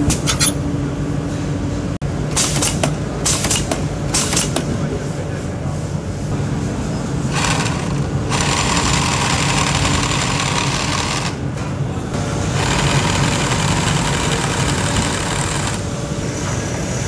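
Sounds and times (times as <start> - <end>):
sewing machine stitching: 7.3 - 11.3.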